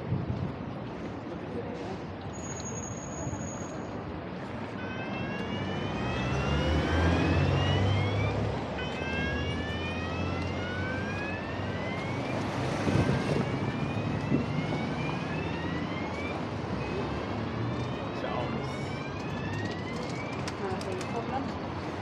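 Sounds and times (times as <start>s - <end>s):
street traffic: 0.0s - 22.0s
emergency siren rising sweeps: 4.7s - 20.9s
vehicle engine passing: 5.2s - 15.4s.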